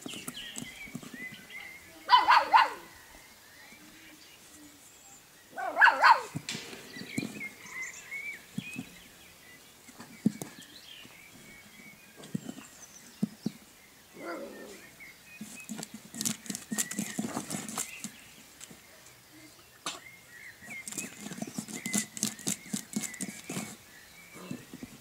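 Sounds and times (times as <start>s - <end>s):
puppy pawing scratches: 15.3s - 18.8s, 20.6s - 23.8s.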